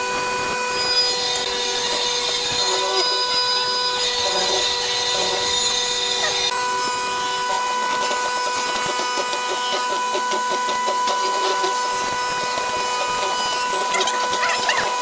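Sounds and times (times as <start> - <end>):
mortising machine motor whine: 0.0 - 15.0.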